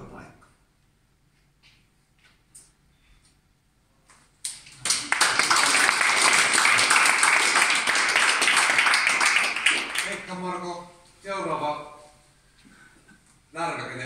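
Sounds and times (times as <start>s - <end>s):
people applauding: 4.4s - 10.5s.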